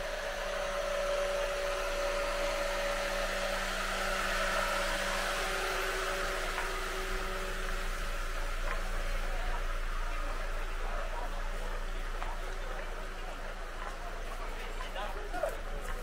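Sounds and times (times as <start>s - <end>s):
machine whirring hum: 0.0s - 11.7s.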